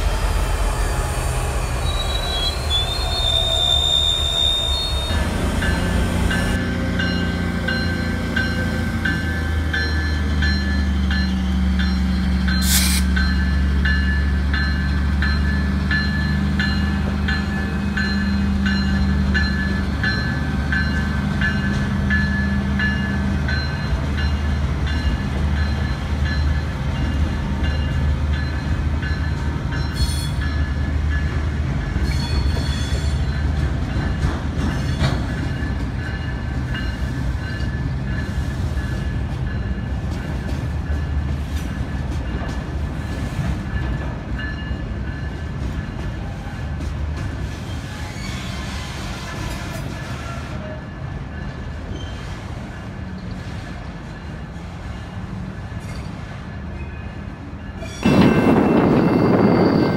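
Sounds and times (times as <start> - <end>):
diesel locomotive running: 0.0 - 59.9.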